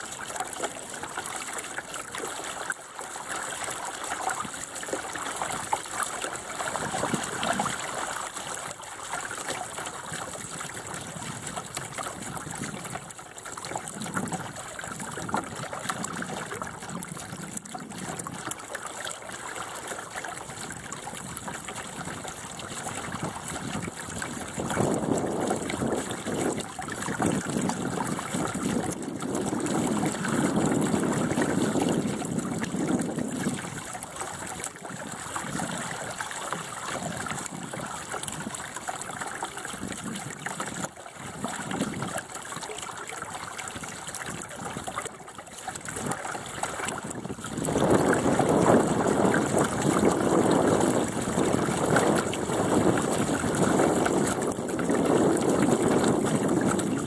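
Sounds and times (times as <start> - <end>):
water rushing along boat hull: 0.0 - 57.0.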